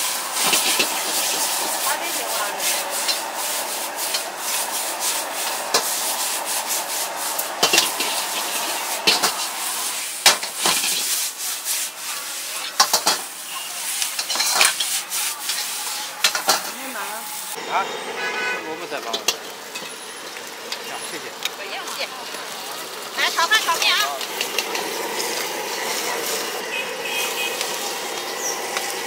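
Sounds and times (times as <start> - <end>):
gas burner hiss: 0.0 - 17.6, 19.0 - 29.0
metal ladle scraping a wok: 0.0 - 17.6, 23.3 - 28.8
noodles sizzling in a wok: 0.0 - 17.6, 19.0 - 29.0.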